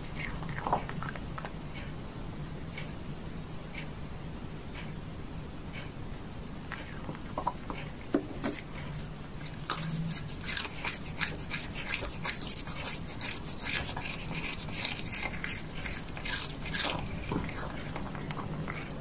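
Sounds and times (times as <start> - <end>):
cat chewing crisp bites: 0.0 - 1.9, 6.7 - 19.0
faint low hum: 0.0 - 19.0.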